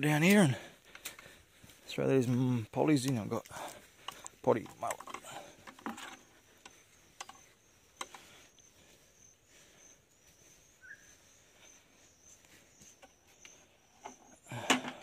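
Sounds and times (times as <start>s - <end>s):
insect chirring: 2.2s - 14.7s.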